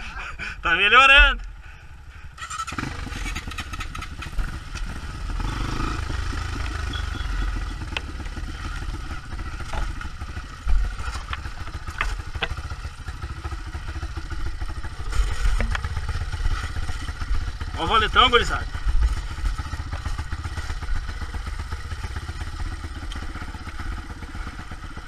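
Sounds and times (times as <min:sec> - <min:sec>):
motorcycle engine running: 0:01.3 - 0:25.0
bike clattering over roots: 0:09.5 - 0:12.9, 0:14.8 - 0:17.4.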